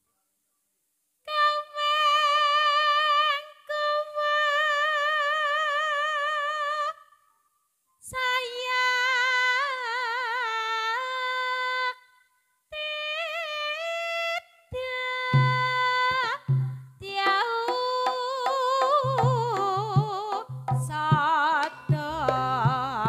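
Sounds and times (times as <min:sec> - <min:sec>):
woman singing solo: 0:14.8 - 0:23.0.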